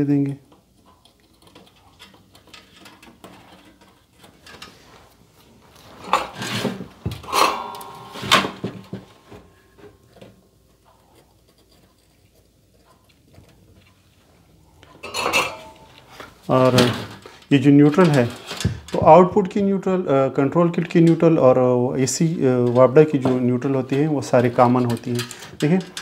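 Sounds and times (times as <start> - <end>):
brief metallic ring: 7.2 - 9.5.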